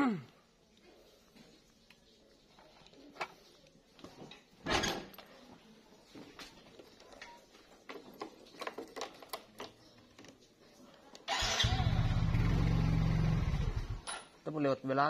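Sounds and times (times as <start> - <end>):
motorcycle engine starting and running: 11.3 - 14.3.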